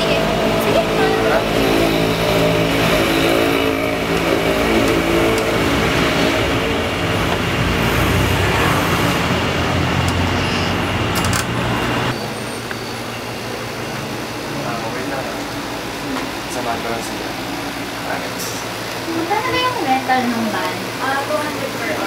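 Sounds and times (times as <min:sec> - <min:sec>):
road noise: 0:00.0 - 0:22.0
vehicle engine running: 0:00.0 - 0:22.0.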